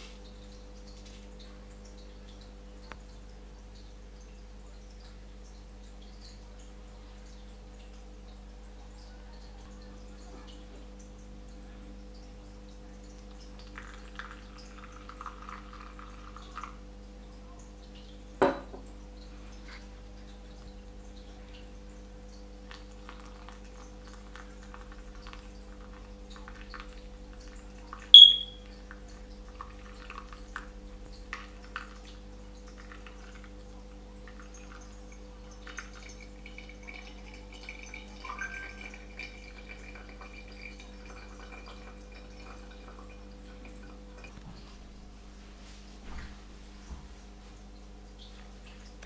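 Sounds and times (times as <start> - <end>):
dripping and crackling: 0.0 - 49.0
water pouring onto coffee grounds: 12.8 - 16.8, 18.6 - 47.7
sharp ringing ping: 28.2 - 28.6.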